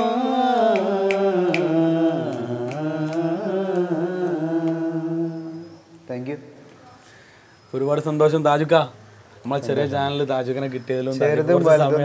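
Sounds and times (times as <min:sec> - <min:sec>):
men singing unaccompanied: 0:00.0 - 0:06.1.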